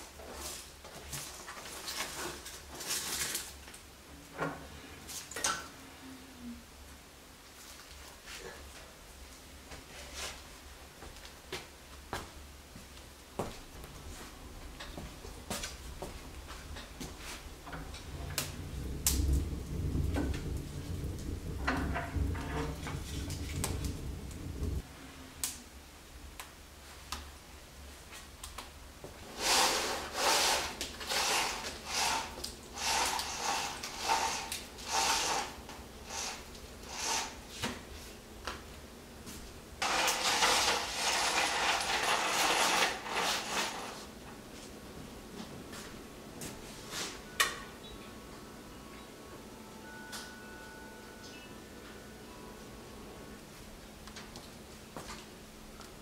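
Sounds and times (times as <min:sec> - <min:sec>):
continuous rush of noise: 0:03.4 - 0:29.2
wood fire crackling: 0:07.4 - 0:46.0
low rumble: 0:15.7 - 0:24.9
short scraping rustling bursts: 0:29.2 - 0:37.5, 0:39.8 - 0:44.1.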